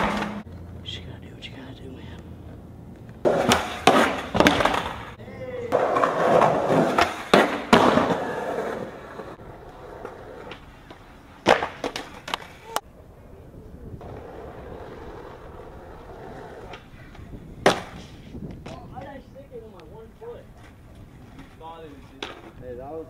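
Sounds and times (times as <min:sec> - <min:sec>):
skateboard cracks and landings: 0:00.0 - 0:00.4, 0:03.2 - 0:12.8, 0:14.0 - 0:18.9
skater slamming onto asphalt: 0:00.0 - 0:00.4, 0:03.2 - 0:09.3, 0:10.0 - 0:12.7, 0:16.4 - 0:18.9
skateboard wheels rolling on pavement: 0:00.0 - 0:00.9, 0:02.2 - 0:23.0.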